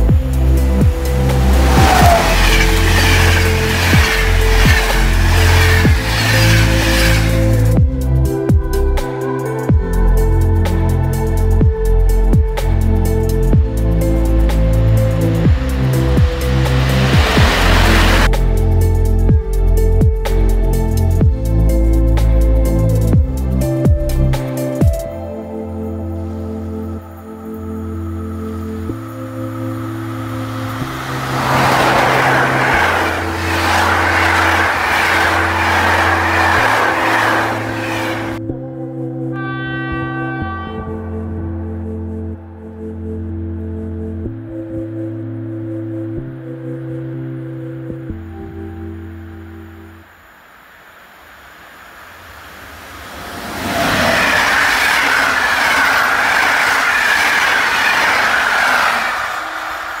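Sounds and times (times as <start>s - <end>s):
background music chords: 0.0s - 50.3s
train rushing past on rails: 0.1s - 8.4s, 14.3s - 19.3s, 29.7s - 38.4s, 51.4s - 60.0s.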